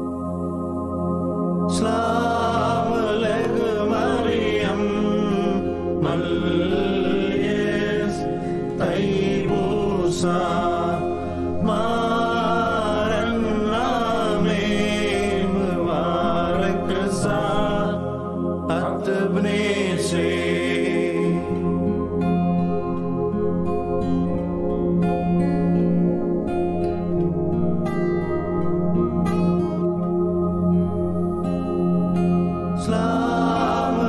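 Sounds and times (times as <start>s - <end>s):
sustained drone: 0.0s - 34.0s
men singing chant-like melody: 1.7s - 22.0s, 32.8s - 34.0s.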